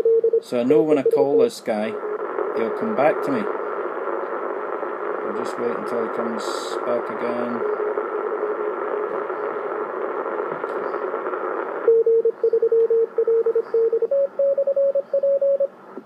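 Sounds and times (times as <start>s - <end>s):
radio band hiss: 0.5s - 12.5s
morse code beeping tone: 11.9s - 15.7s.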